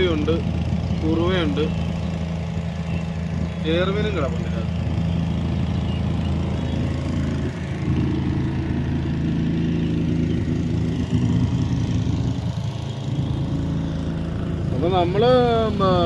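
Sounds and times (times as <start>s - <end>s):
small petrol engine droning: 0.0s - 16.0s.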